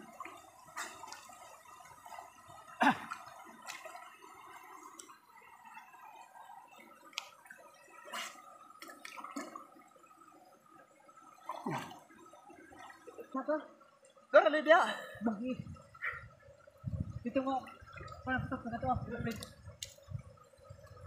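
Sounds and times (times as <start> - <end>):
water sloshing around swimmers: 0.0 - 14.5.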